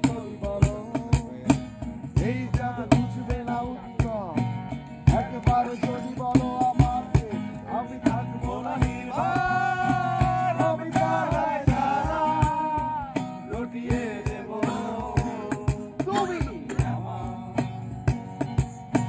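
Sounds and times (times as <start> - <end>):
percussive beat: 0.0 - 19.0
person singing: 5.2 - 17.6.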